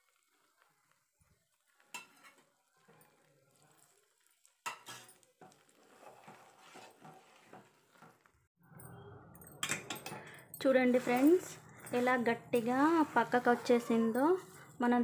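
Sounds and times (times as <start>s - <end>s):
spoon scraping a pan: 1.8s - 8.3s, 9.6s - 14.8s
spoon clinking on metal pan: 1.9s - 3.2s, 4.6s - 5.6s, 9.4s - 12.7s.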